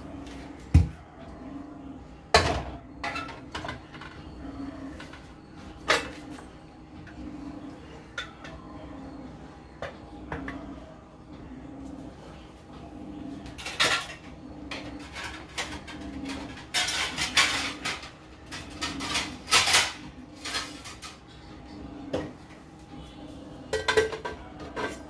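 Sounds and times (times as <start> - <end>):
metal kitchenware clattering: 2.4 - 4.2, 13.5 - 21.3, 23.7 - 25.0.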